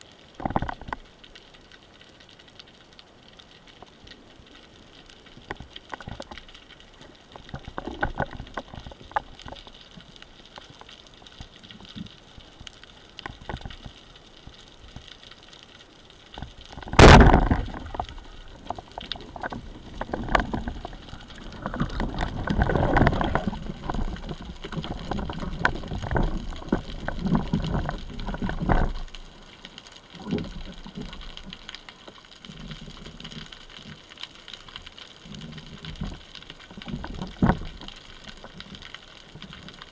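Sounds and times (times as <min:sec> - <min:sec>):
faint underwater clicks: 0:00.0 - 0:39.9
knocking and scraping on rocks: 0:16.8 - 0:18.2
speargun firing crack: 0:17.0 - 0:17.4.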